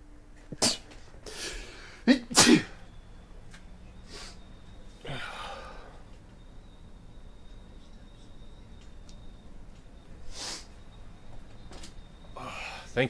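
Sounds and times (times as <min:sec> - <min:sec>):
man sneezing: 0:00.5 - 0:02.8.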